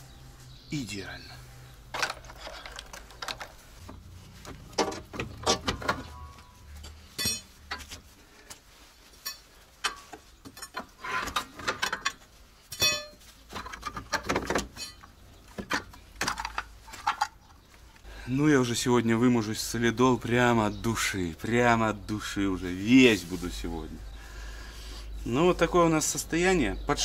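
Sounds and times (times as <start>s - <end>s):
metal tools clanking and scraping: 1.9s - 8.0s, 9.1s - 17.6s.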